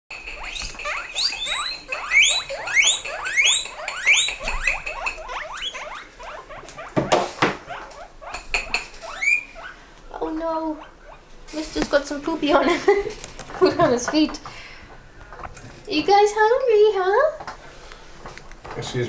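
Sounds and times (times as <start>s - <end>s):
guinea pigs squealing: 0.1s - 11.7s.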